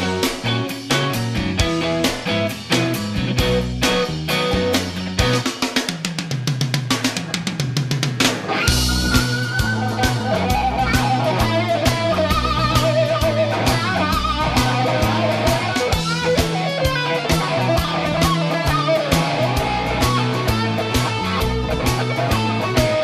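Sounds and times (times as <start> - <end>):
bass line: 0.0 - 5.5, 8.6 - 23.0
steady drum beat: 0.0 - 23.0
lead electric guitar bent notes: 8.4 - 23.0.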